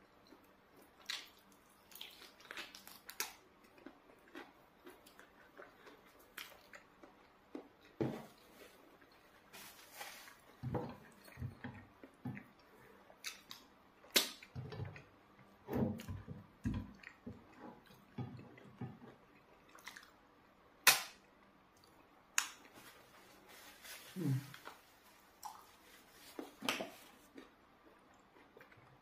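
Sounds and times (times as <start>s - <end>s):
person chewing and swallowing: 0.2s - 9.4s, 10.7s - 13.6s.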